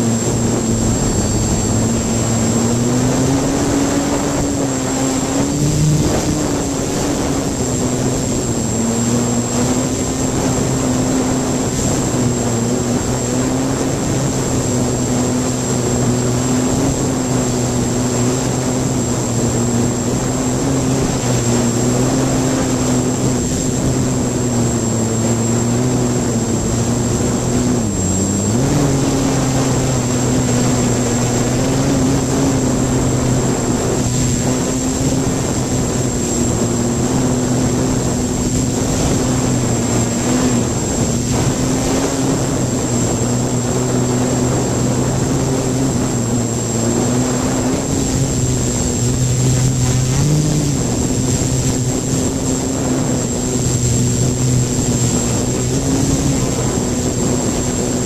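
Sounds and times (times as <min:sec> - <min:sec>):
drone motors and propellers buzzing: 0:00.0 - 0:58.0
rush of air: 0:00.0 - 0:58.0.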